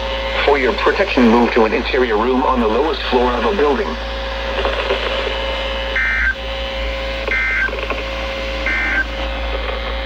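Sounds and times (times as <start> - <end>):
steady receiver tone: 0.3 - 6.4, 7.1 - 9.8
weather alert radio beeping: 0.3 - 6.4, 7.2 - 8.0, 8.6 - 9.1.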